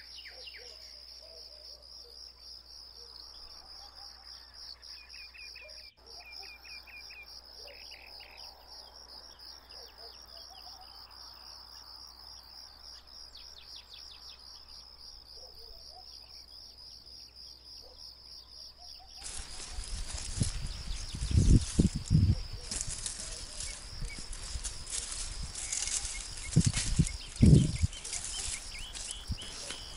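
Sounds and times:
bird chirps: 0.0s - 1.8s, 3.3s - 8.7s, 25.6s - 29.9s
insects chirping: 0.0s - 29.9s
rush of outdoor noise: 19.2s - 29.9s.

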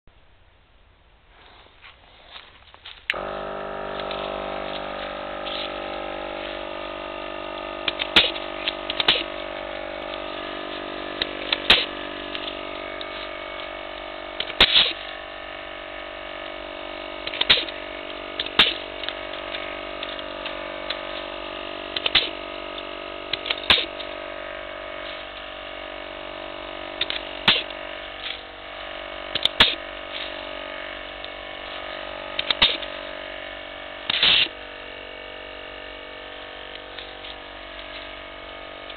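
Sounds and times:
air compressor humming: 1.3s - 38.9s
pruning shears snapping branches: 7.8s - 10.3s, 11.0s - 13.4s, 14.4s - 15.2s, 17.2s - 21.0s, 22.0s - 22.4s, 23.3s - 24.1s, 27.0s - 28.4s, 29.4s - 30.4s, 32.4s - 32.9s, 34.1s - 34.5s.

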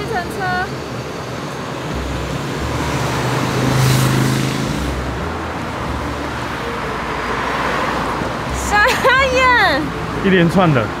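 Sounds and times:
traffic hum: 0.0s - 11.0s
car driving past: 1.4s - 8.6s.

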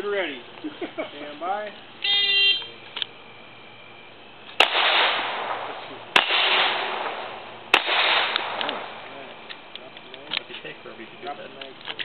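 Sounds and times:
pistol shots with rolling echo: 4.5s - 9.7s.

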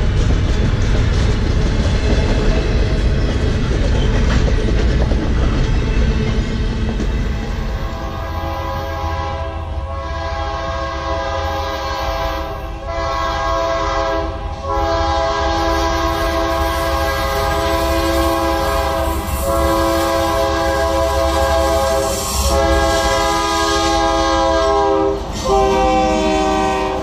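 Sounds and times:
train rumble: 0.0s - 27.0s
locomotive air horn blasts: 7.9s - 27.0s.

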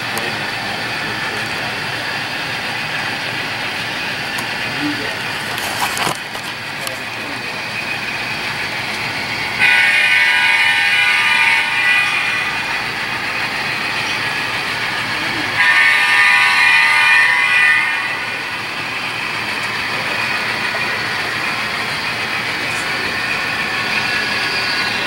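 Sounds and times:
model locomotive horn blasts: 9.5s - 25.0s.

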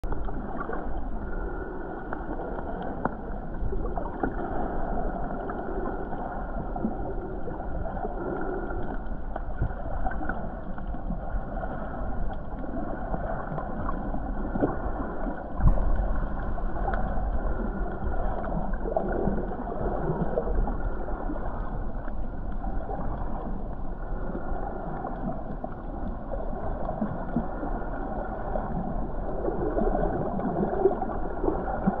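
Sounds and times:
underwater moving water: 0.0s - 32.0s
underwater bump: 15.6s - 16.4s.

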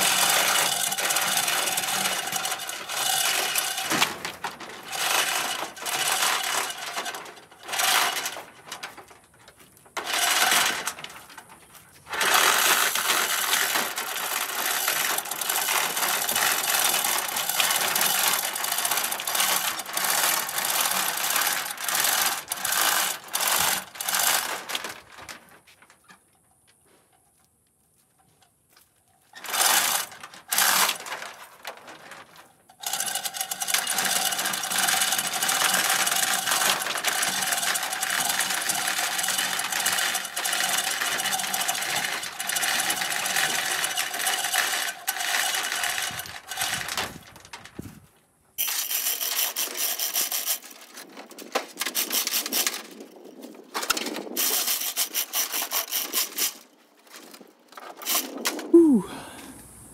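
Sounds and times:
power tool clattering: 0.0s - 8.4s, 10.0s - 11.4s, 12.1s - 24.7s.

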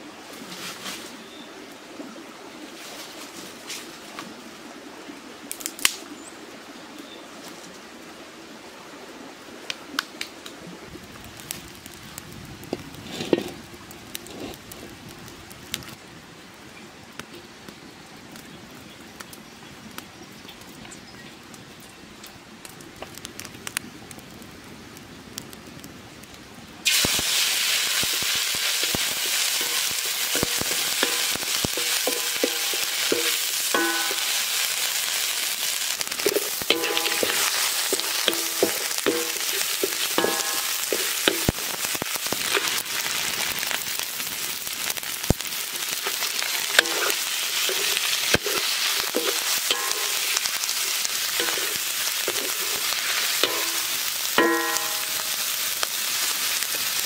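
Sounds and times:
spatula scraping metal wok: 13.0s - 13.6s, 28.0s - 42.8s, 45.7s - 55.6s
paste sizzling in oil: 26.8s - 57.0s.

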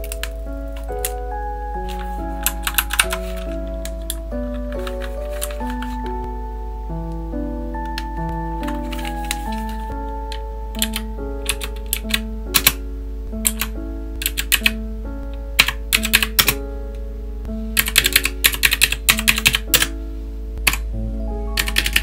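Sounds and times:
background music: 0.0s - 22.0s
clicky keyboard keystrokes: 1.8s - 6.1s, 10.8s - 12.8s, 13.4s - 14.8s, 15.6s - 16.6s, 17.8s - 19.9s.

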